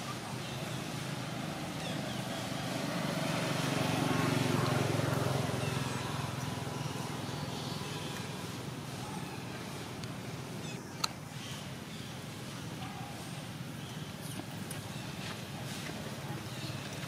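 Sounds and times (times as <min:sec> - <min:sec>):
outdoor background noise: 0:00.0 - 0:17.0
vehicle passing: 0:00.5 - 0:10.6.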